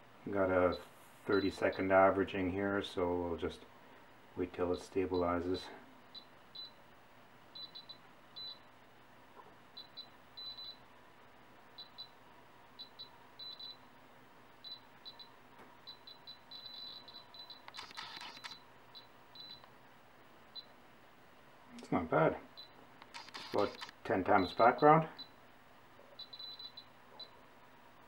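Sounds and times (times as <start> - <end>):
radiation detector beeps: 6.2 - 6.8, 7.6 - 8.7, 9.8 - 10.8, 12.8 - 13.8, 14.6 - 19.7, 26.2 - 27.4.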